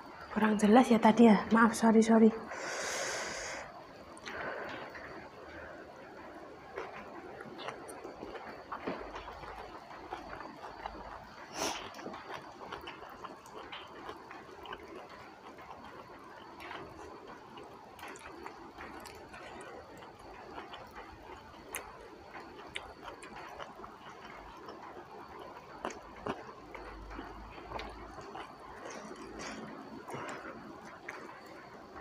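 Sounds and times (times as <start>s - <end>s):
person chewing food: 2.7s - 32.0s.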